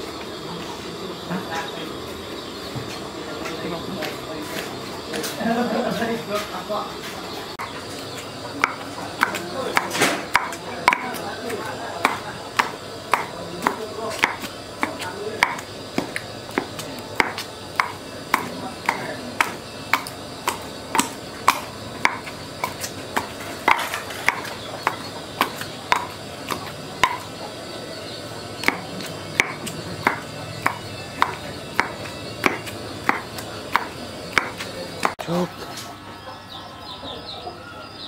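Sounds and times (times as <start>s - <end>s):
pestle pounding in stone mortar: 7.6s - 35.3s.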